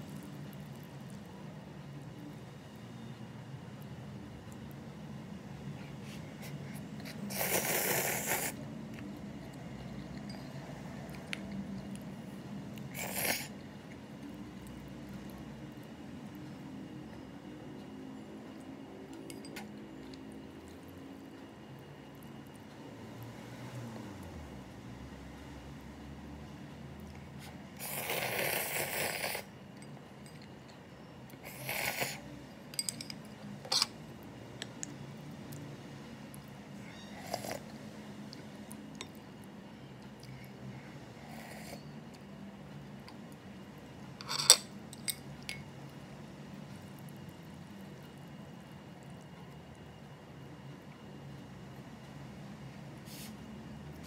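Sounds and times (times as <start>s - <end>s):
faint low hum: 0.0s - 54.0s
person slurping noodles: 7.0s - 8.6s, 12.9s - 13.6s, 27.8s - 29.5s, 31.4s - 32.2s
utensil clinking ceramic bowl: 32.7s - 34.0s.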